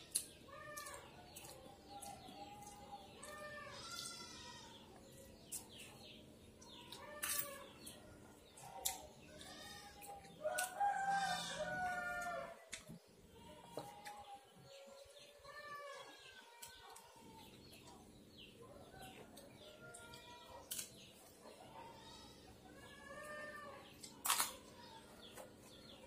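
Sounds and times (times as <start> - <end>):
rooster crowing: 10.4 - 12.6.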